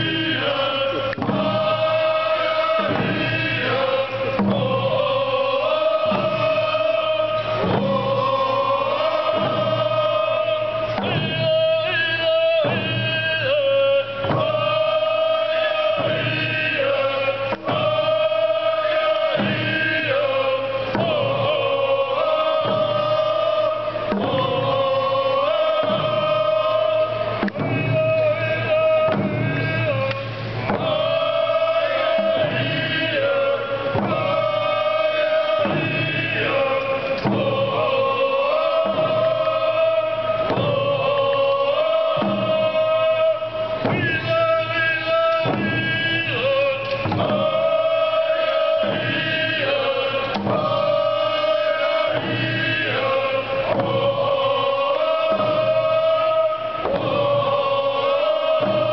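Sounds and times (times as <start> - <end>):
group chanting in held notes: 0.0 - 58.9
hand drums beating: 25.5 - 33.2, 33.8 - 41.0, 45.3 - 58.9.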